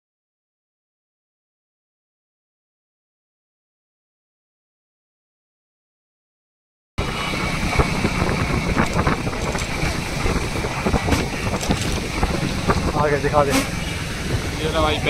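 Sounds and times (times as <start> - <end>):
motorcycle engine running: 7.0 - 15.0
wind on microphone: 7.0 - 15.0.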